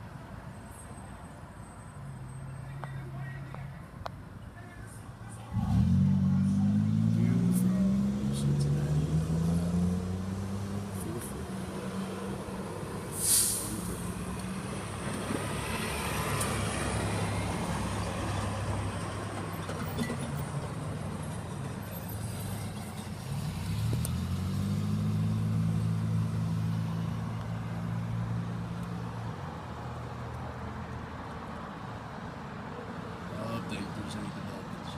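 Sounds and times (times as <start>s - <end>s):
heavy vehicle engine: 5.4s - 30.8s
short loud hiss: 13.1s - 13.9s.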